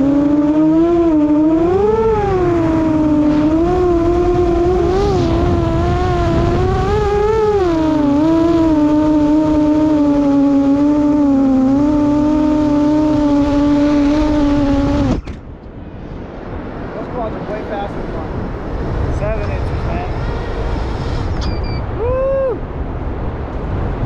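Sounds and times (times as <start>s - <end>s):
drone motors whining: 0.0s - 15.4s
wind rushing over camera: 0.0s - 24.0s.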